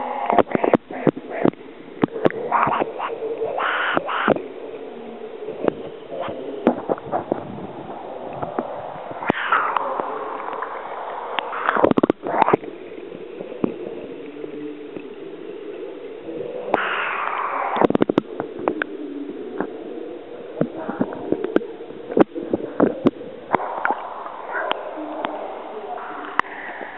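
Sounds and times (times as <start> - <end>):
muffled underwater gurgling: 0.0 - 26.9
rushing water swishes: 0.0 - 26.9
sharp underwater clicks: 0.3 - 4.5, 8.3 - 15.2, 16.7 - 19.0, 20.6 - 25.4.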